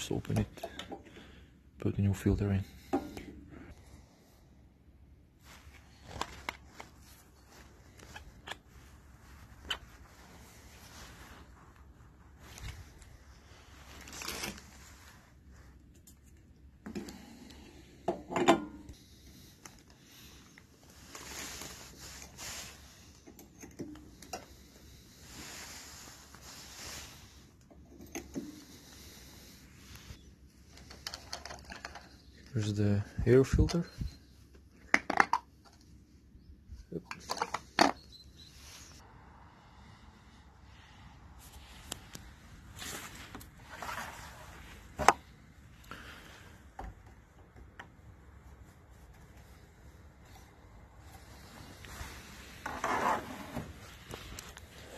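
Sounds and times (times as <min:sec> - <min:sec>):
rustling handling noises: 0:05.3 - 0:18.0, 0:18.8 - 0:39.0, 0:41.0 - 0:54.9
soft scraping: 0:39.8 - 0:45.2, 0:50.3 - 0:54.9.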